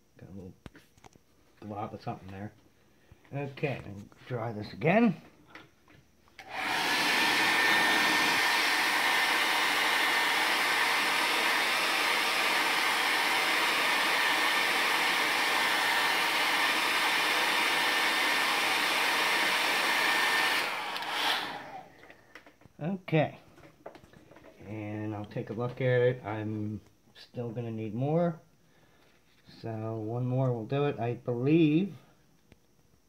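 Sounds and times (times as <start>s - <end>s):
hair dryer running: 6.4s - 22.1s.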